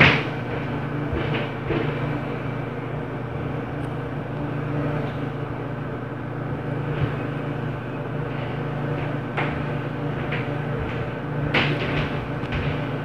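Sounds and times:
footsteps stomping through ceiling: 0.0 - 2.4, 8.9 - 13.0
steady low hum: 0.0 - 13.0.

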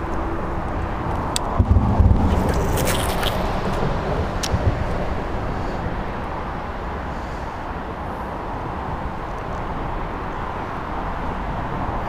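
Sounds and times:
vehicle passing: 0.0 - 7.5
road traffic noise: 0.0 - 12.0.

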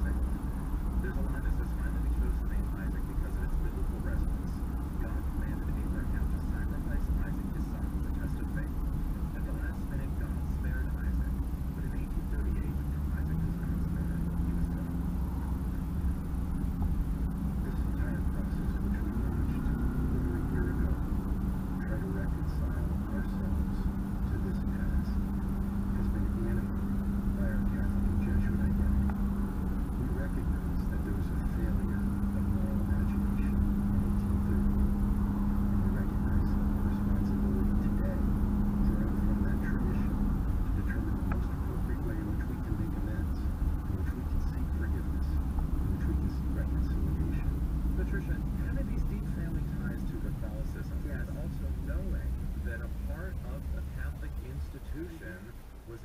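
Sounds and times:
low hum: 0.0 - 56.0
road and engine rumble: 0.0 - 56.0.

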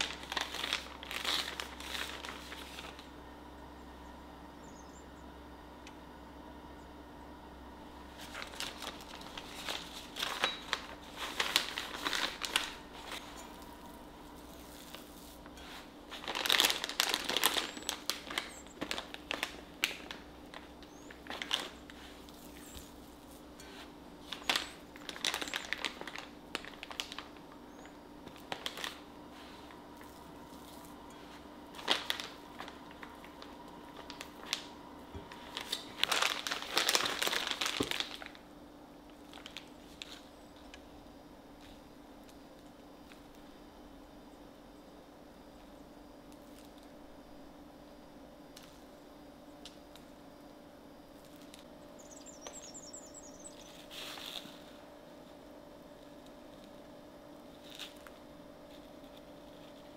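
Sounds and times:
plastic bag crinkling: 0.0 - 3.2, 8.0 - 40.8, 51.2 - 54.9, 57.5 - 59.9.

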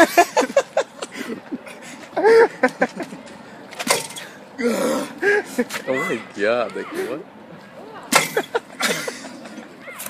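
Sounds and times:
young man laughing and calling out: 5.2 - 10.0.

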